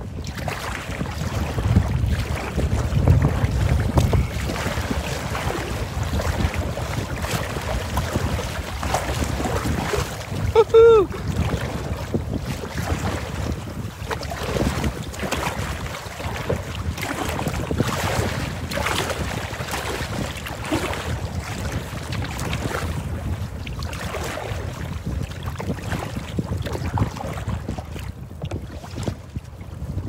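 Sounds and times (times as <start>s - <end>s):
strong wind on microphone: 0.0s - 30.0s
water slapping against kayak hull: 0.0s - 30.0s.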